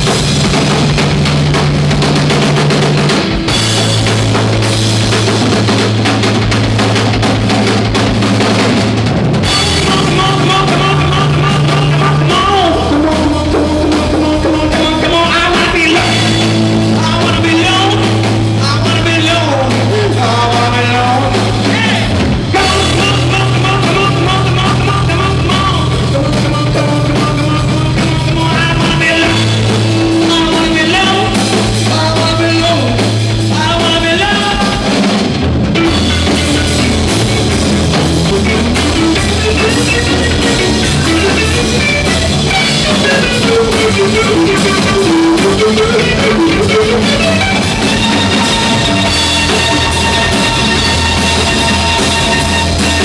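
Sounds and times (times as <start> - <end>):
bass guitar long notes: 0.0 - 53.0
drum kit: 0.0 - 53.0
electric guitar: 0.0 - 53.0
person singing: 9.5 - 35.0, 38.2 - 53.0.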